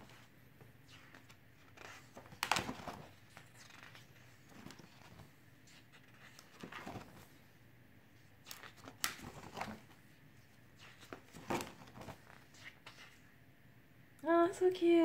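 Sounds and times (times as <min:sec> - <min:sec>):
book pages rustling: 0:00.0 - 0:07.5, 0:08.2 - 0:13.3
sharp page snaps: 0:01.8 - 0:04.8, 0:08.4 - 0:09.8.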